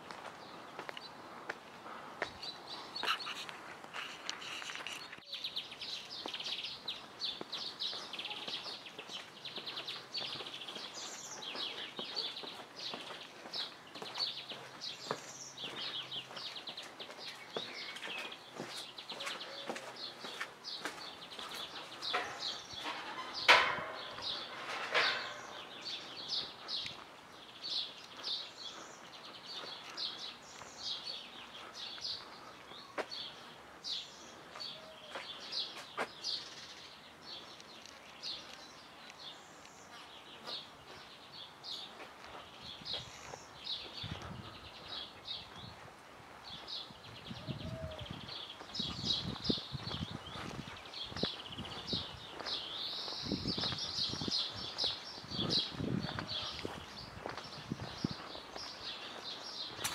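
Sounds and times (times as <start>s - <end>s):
footsteps on stone: 0.0s - 5.3s, 5.9s - 36.4s, 37.2s - 59.9s
small birds chirping: 0.0s - 59.9s.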